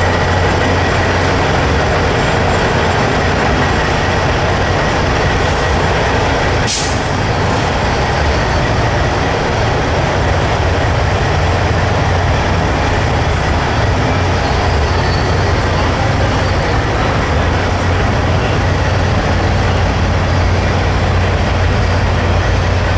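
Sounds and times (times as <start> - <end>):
diesel truck engine running: 0.0 - 22.9
air brake hiss: 6.6 - 7.2.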